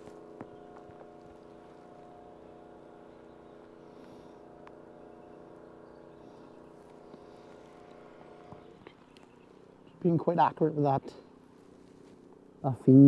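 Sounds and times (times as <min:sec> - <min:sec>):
mechanical motor hum: 0:00.0 - 0:13.0
faint ticks: 0:04.0 - 0:04.8.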